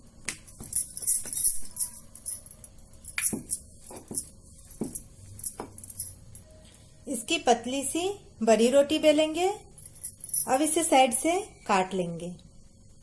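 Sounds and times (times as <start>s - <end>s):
jingling clinks: 0.5s - 6.4s, 9.7s - 10.8s.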